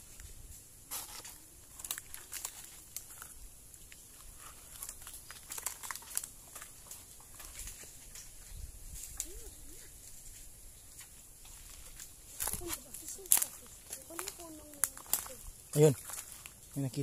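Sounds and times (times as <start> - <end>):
branches brushing past: 0.0 - 17.0
leaves and twigs crackling underfoot: 0.0 - 17.0.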